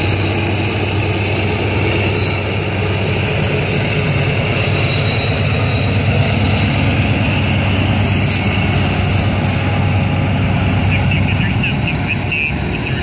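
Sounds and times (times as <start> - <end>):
diesel locomotive engine drone: 0.0 - 13.0.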